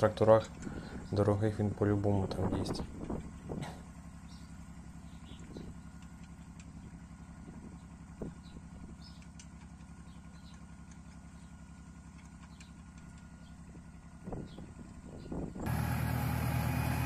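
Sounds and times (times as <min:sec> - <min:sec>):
mini tractor engine running: 0:00.0 - 0:17.0.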